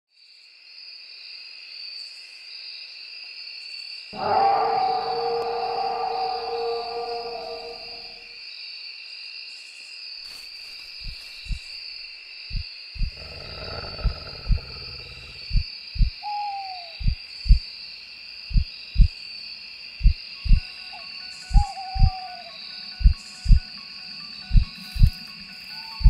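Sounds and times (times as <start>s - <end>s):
owl hooting: 4.2s - 8.2s, 16.0s - 17.6s, 20.5s - 23.6s
high insect-like drone: 4.2s - 8.3s
low howl: 4.2s - 8.3s, 21.5s - 22.6s
heartbeat thudding: 11.0s - 11.8s, 12.5s - 16.2s, 17.0s - 17.6s, 18.5s - 19.1s, 20.0s - 20.6s, 21.5s - 22.2s, 23.0s - 23.7s, 24.5s - 25.2s.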